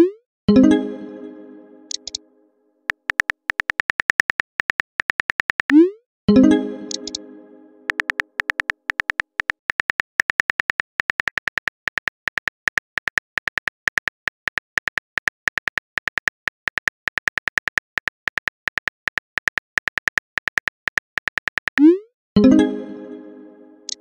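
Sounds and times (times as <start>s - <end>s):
phone keyboard typing clicks: 1.9s - 2.2s, 2.9s - 5.8s, 6.9s - 7.2s, 7.9s - 21.9s.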